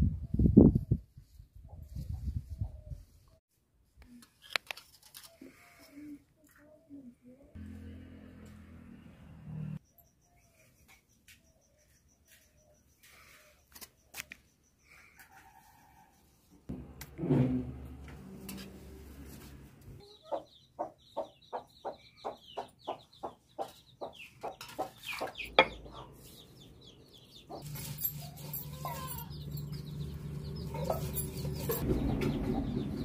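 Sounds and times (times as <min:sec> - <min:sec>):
chicken clucking: 0:20.0 - 0:26.3.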